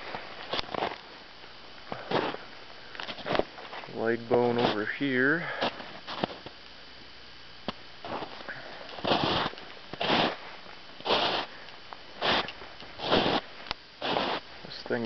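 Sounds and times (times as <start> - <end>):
footsteps crunching in snow: 0.0 - 1.1, 2.0 - 2.5, 3.1 - 4.9, 8.0 - 11.5, 12.2 - 14.5.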